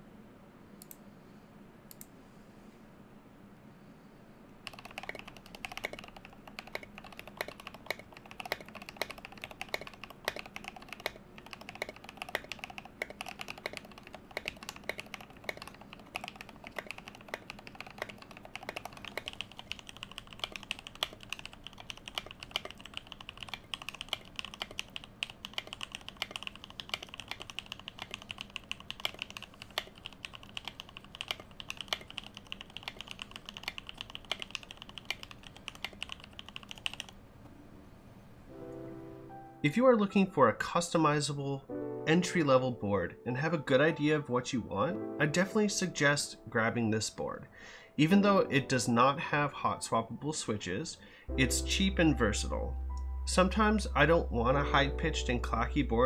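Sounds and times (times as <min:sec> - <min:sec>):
mechanical keyboard typing: 0:04.6 - 0:37.2.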